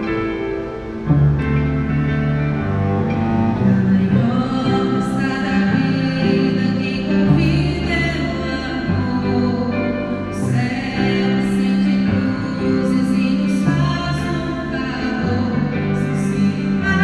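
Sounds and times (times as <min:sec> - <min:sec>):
bowed cello: 0:00.0 - 0:17.0
keyboard sustained chords: 0:00.0 - 0:17.0
woman singing: 0:03.6 - 0:17.0.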